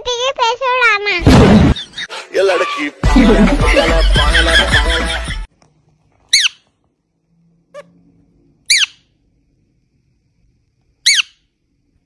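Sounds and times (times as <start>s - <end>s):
parakeet squeaky calls: 6.3s - 6.6s, 8.7s - 9.1s, 11.0s - 11.4s.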